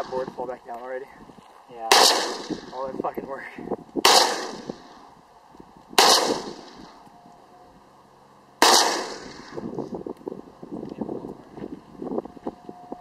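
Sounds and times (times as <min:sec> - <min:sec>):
rifle shots: 0:01.8 - 0:02.9, 0:04.0 - 0:05.0, 0:06.0 - 0:06.9, 0:08.6 - 0:09.6.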